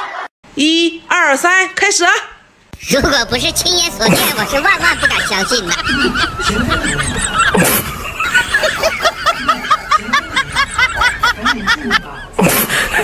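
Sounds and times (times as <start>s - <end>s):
cartoon snickering effect: 3.8s - 13.0s.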